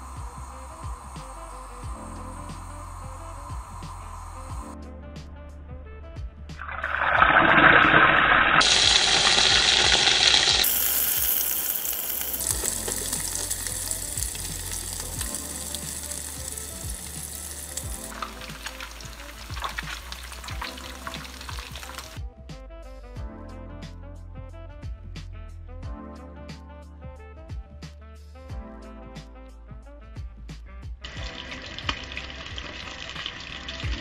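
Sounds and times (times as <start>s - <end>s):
fish sizzling in hot oil: 8.5s - 22.2s, 31.1s - 34.0s.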